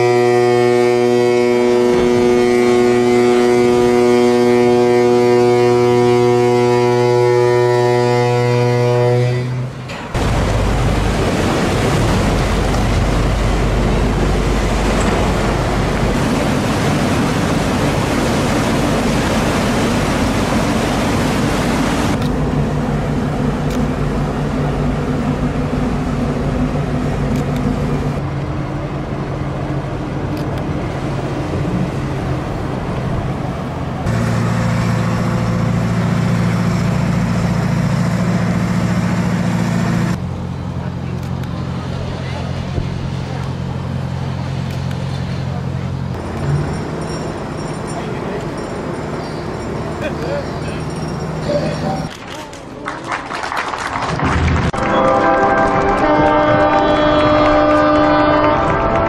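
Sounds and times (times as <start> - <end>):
ship's horn blast: 0.0 - 22.5, 54.6 - 59.0
rush of water: 9.8 - 59.0.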